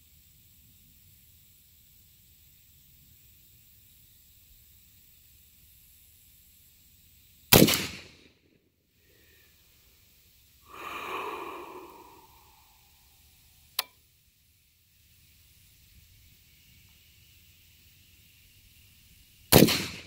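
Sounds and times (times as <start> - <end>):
rifle shot: 7.5 - 8.2, 19.5 - 20.0
soft rushing sound: 10.7 - 12.8.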